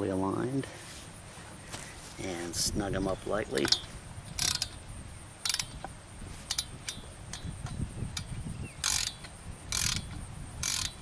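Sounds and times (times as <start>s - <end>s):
ratchet wrench clicking: 3.6s - 4.8s, 5.4s - 11.0s.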